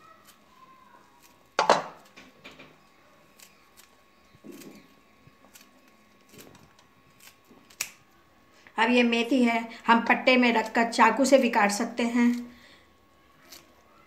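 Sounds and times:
scissors snipping leaves: 3.3 - 8.0, 10.3 - 12.5, 13.4 - 13.8.

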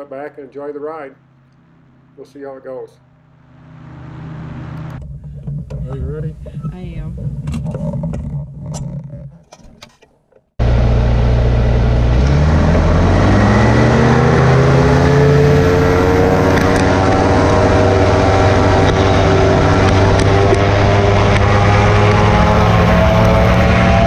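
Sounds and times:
aircraft engine revving: 3.6 - 7.3, 10.6 - 24.0.

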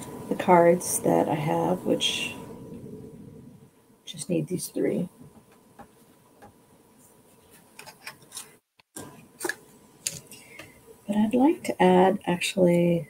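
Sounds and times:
paper rustling: 7.4 - 8.6.

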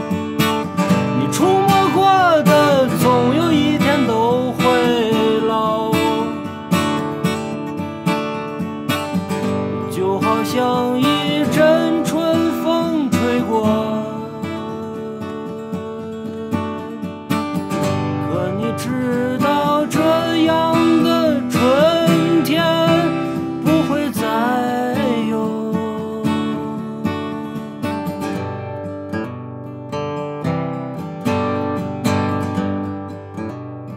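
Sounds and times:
acoustic guitar strumming: 0.0 - 33.9
man singing: 0.9 - 7.1, 9.4 - 17.2, 17.9 - 28.0.

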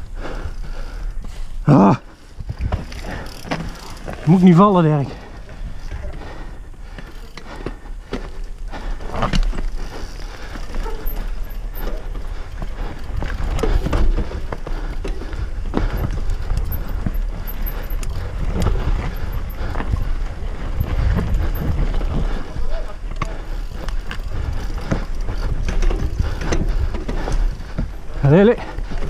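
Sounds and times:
bike tyres rumbling over dirt: 0.0 - 29.0
bike knocks and rattles: 2.4 - 5.0, 9.0 - 29.0.

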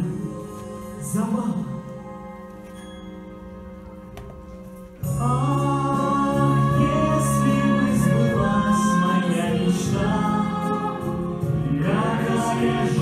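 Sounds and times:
choir singing held chords: 5.0 - 13.0.

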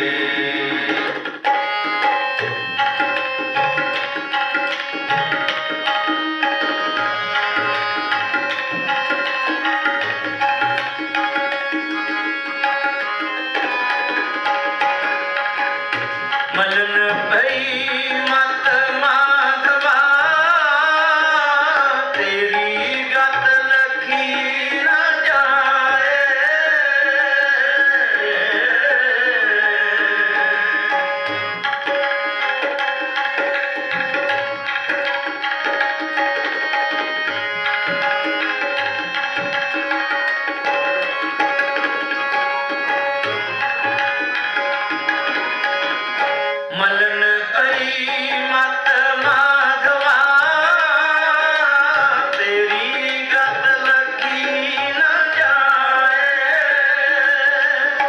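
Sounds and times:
person singing: 0.0 - 1.2, 16.6 - 31.2, 46.7 - 58.0
harmonium chords: 0.0 - 58.0
tabla strokes: 0.0 - 58.0.

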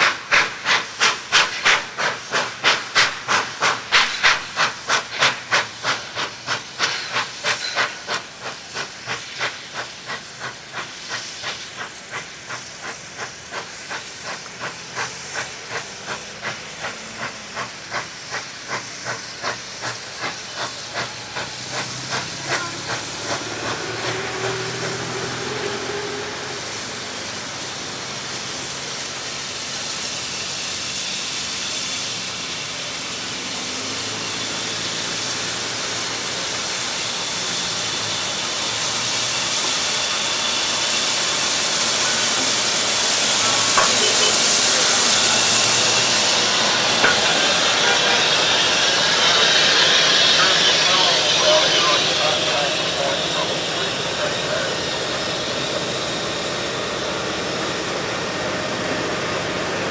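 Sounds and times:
steam locomotive exhaust chuffing: 0.0 - 59.9
train carriages rumbling past: 0.0 - 59.9.

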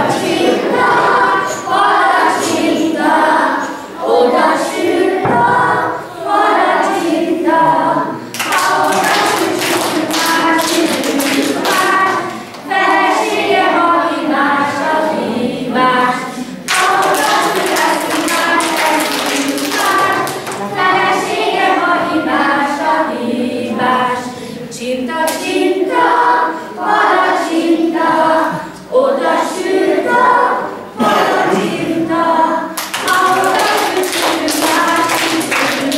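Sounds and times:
children singing in chorus: 0.0 - 35.9
hand clapping: 8.3 - 12.8, 16.7 - 20.7, 32.8 - 35.9.

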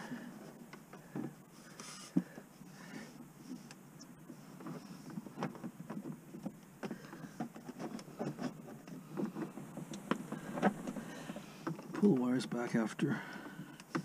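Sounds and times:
hands handling wiring and connectors: 3.1 - 12.3.

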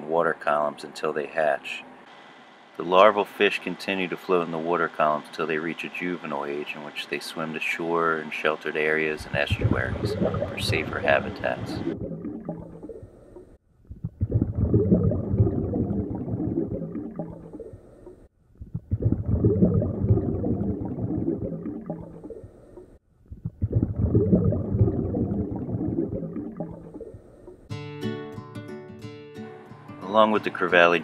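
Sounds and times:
underwater gurgling and rumbling: 9.1 - 27.7.

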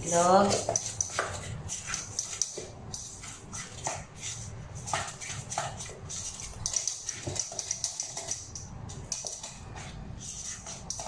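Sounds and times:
wet stirring in metal bowl: 0.0 - 11.0.

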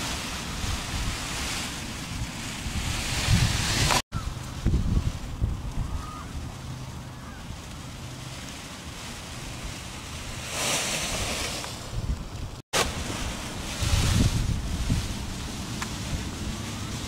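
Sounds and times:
wind buffeting microphone: 0.0 - 8.2, 8.9 - 17.0.

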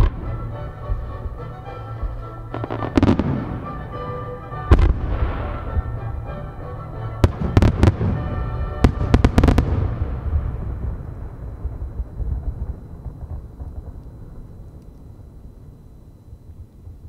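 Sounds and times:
music playing: 0.0 - 11.3
firework bangs: 0.0 - 14.6.

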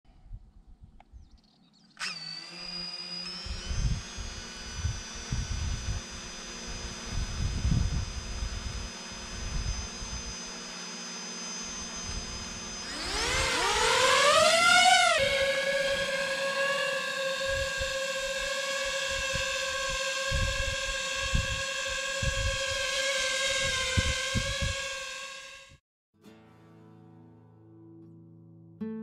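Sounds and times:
drone motors whining: 1.9 - 25.8.

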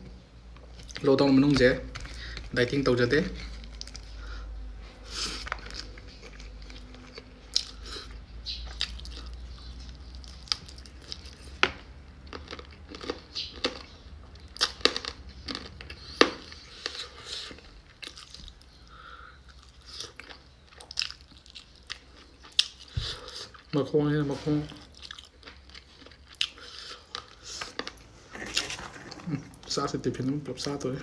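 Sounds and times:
steady low hum: 0.0 - 31.0
wet chewing and mouth smacks: 5.3 - 11.6.

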